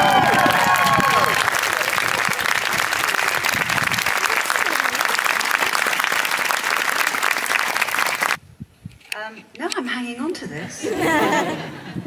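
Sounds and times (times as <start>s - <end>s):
crowd clapping: 0.0s - 8.4s
voices: 1.1s - 5.8s.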